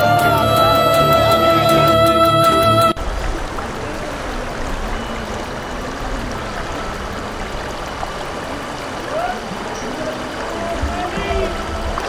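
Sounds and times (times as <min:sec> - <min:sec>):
river flowing over stones: 0:03.0 - 0:12.0.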